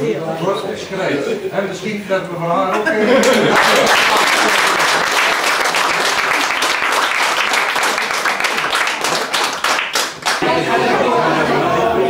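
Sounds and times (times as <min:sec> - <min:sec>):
small group clapping: 0:03.1 - 0:10.6.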